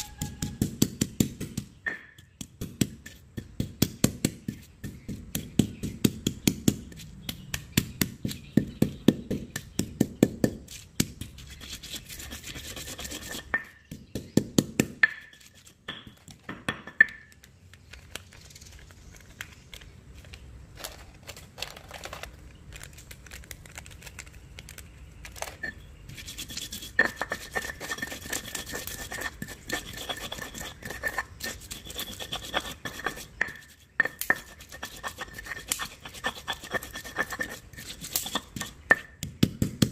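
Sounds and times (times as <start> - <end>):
stone pestle knocking on mortar: 0.0 - 11.3, 13.2 - 17.4, 26.4 - 39.9
stone pestle scraping paste: 0.0 - 17.4, 25.4 - 39.9.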